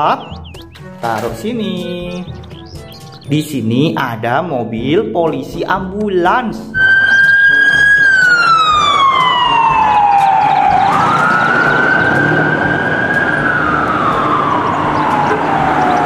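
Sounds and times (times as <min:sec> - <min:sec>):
ambulance siren wailing: 0:06.8 - 0:16.0.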